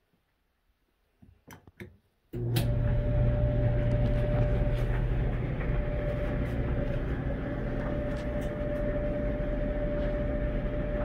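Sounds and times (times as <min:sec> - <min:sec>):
clothes dryer running: 0:02.4 - 0:11.0.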